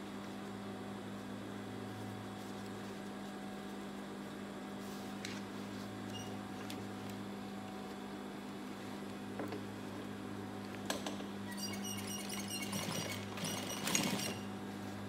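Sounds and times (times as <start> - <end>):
sewing machine humming: 11.6 - 14.5.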